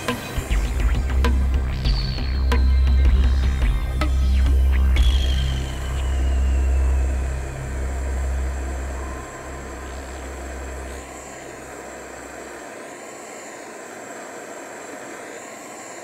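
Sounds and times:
low bass music: 0.0s - 11.2s
gas torch hissing: 4.4s - 16.0s.

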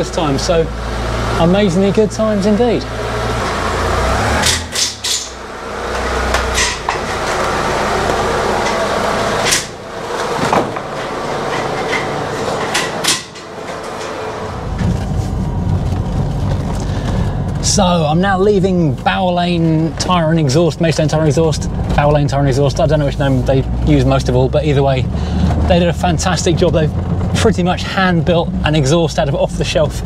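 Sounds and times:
car engine running: 0.0s - 30.0s
workshop knocks and clanks: 4.4s - 15.5s.

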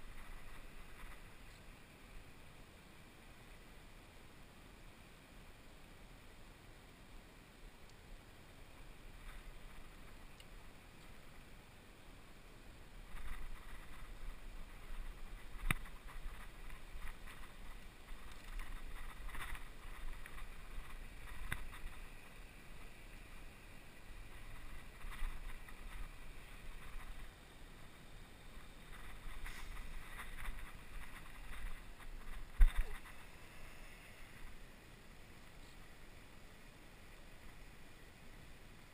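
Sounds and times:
scratchy handling noise: 13.1s - 22.3s, 28.6s - 34.6s.

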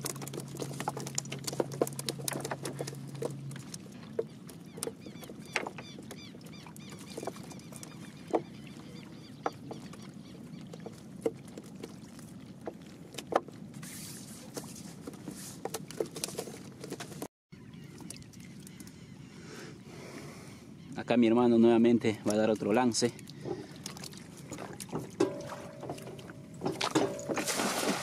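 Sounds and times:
knocks and taps in a boat: 0.0s - 11.9s, 24.5s - 27.4s.

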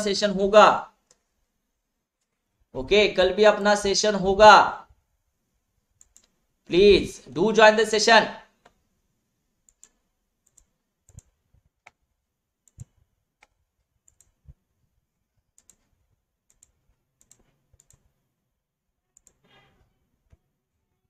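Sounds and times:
faint irregular clicks: 1.0s - 1.3s, 2.2s - 2.5s, 6.0s - 6.4s, 8.6s - 8.8s, 9.6s - 14.6s, 15.4s - 18.2s, 19.1s - 19.4s.

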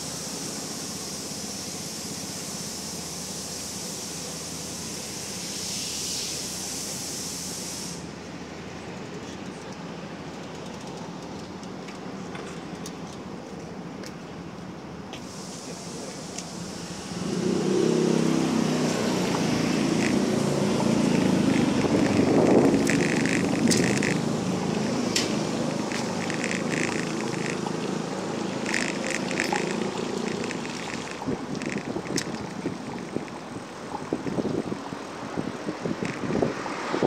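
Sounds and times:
street traffic: 0.0s - 37.0s
bicycle rattling: 10.3s - 11.7s, 19.2s - 34.5s, 36.0s - 36.5s
bicycle rolling rumble: 16.5s - 37.0s.

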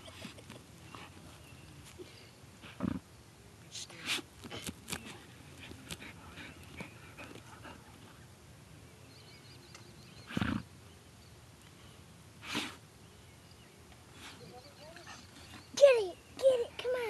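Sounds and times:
scratches of dirt and grass: 3.7s - 7.5s, 12.4s - 12.8s
dog sniffing and snuffling: 3.9s - 8.2s, 12.4s - 12.8s.

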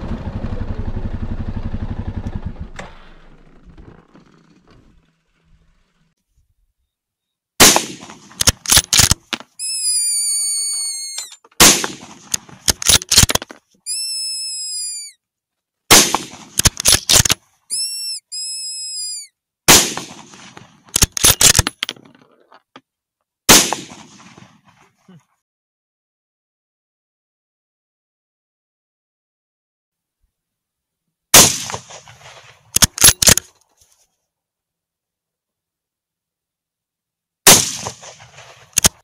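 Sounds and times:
rifle shots: 7.6s - 9.3s, 11.6s - 13.4s, 15.9s - 17.4s, 19.7s - 21.7s, 23.5s - 24.5s, 31.4s - 33.5s, 37.5s - 39.0s
high wavering squeal: 13.9s - 15.2s, 17.7s - 19.3s.

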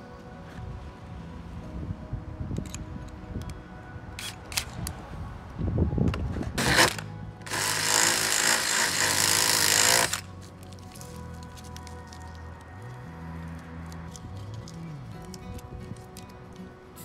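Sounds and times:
background music: 0.0s - 17.0s
drill boring through sheet metal: 7.5s - 10.2s.

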